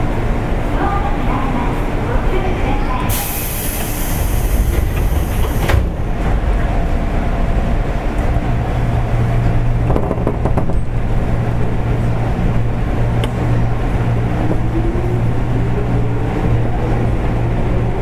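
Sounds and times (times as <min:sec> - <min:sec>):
train running drone: 0:00.0 - 0:18.0
knocks: 0:09.9 - 0:10.8.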